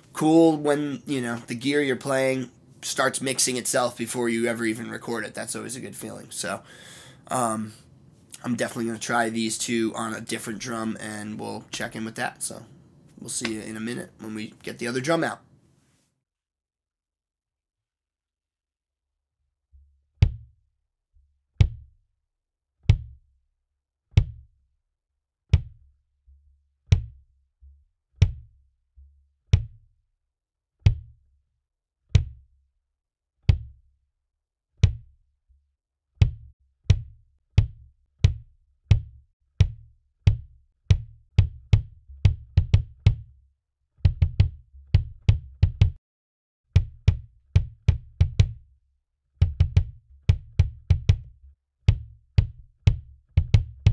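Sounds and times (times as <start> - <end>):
kick drum strokes: 24.2 - 24.4, 33.5 - 33.8, 34.8 - 35.1, 36.2 - 43.3, 44.0 - 46.0, 46.8 - 48.7, 49.4 - 53.9.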